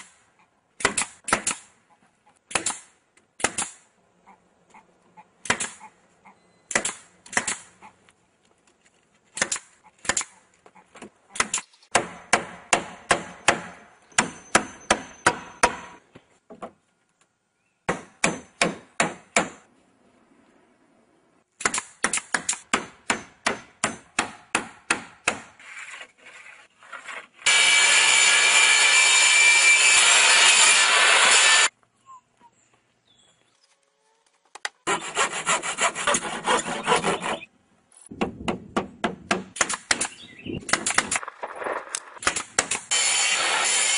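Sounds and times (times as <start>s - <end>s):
nail gun firing into wood: 38.2s - 41.2s, 42.2s - 43.0s.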